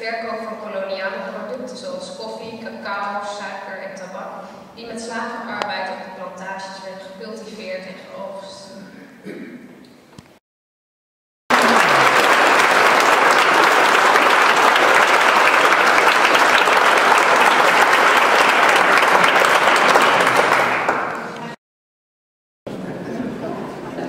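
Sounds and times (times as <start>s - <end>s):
large audience applauding: 11.5s - 21.6s.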